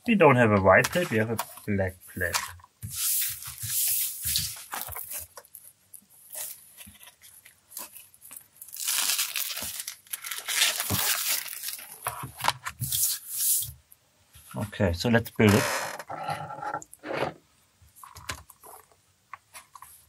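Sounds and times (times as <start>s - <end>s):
packaging tearing and crinkling: 7.8s - 12.1s.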